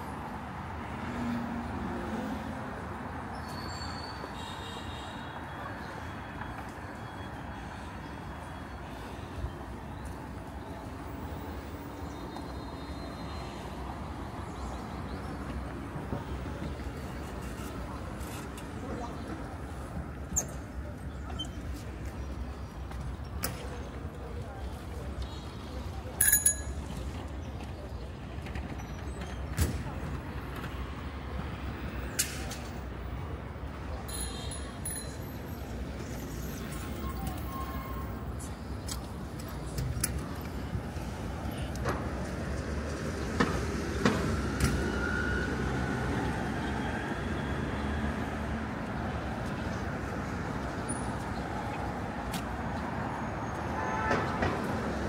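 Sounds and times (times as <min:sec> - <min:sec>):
passing vehicles: 0:00.0 - 0:55.0
traffic rumble: 0:00.0 - 0:55.0
faint voices: 0:15.4 - 0:43.7.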